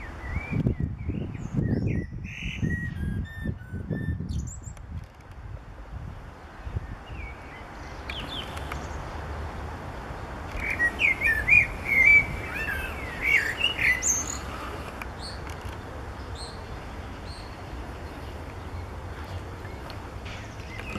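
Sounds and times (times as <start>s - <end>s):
blackbird singing: 0.0s - 4.8s, 6.6s - 9.0s, 10.6s - 15.4s.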